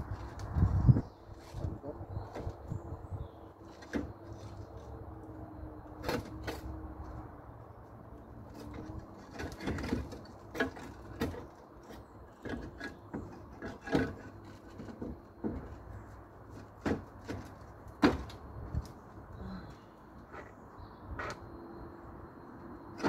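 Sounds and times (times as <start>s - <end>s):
roof tiles knocking and scraping: 8.5s - 15.9s, 16.5s - 18.4s.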